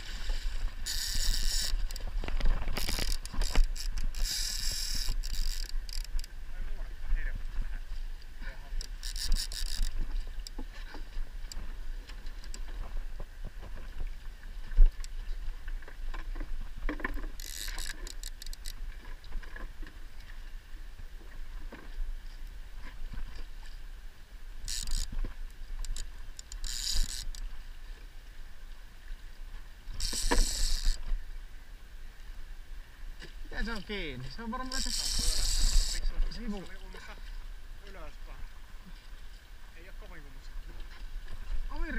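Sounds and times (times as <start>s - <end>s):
fishing reel gears ticking: 0.8s - 2.1s, 2.8s - 6.4s, 8.8s - 10.6s, 17.3s - 18.8s, 24.6s - 25.2s, 25.8s - 27.4s, 29.9s - 31.0s, 34.6s - 36.1s.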